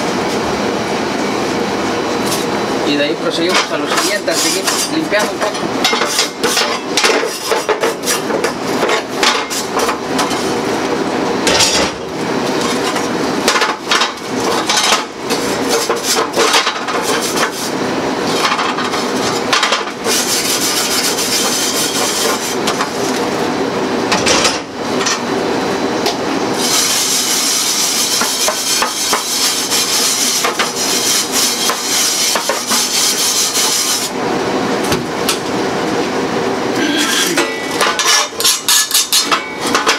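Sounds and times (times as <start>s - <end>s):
stiff brush scrubbing metal: 26.6s - 34.1s
metal grates clattering: 37.3s - 39.9s.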